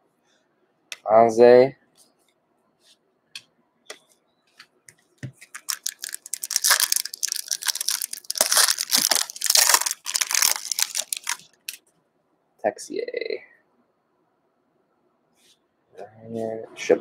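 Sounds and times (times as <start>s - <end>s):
card pack wrapper crinkling: 5.4s - 11.8s.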